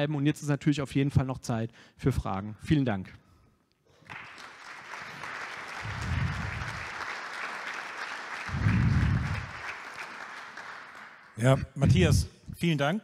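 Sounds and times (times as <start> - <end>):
audience applauding: 4.0 - 11.6
low rumble: 5.8 - 6.8, 8.5 - 9.5.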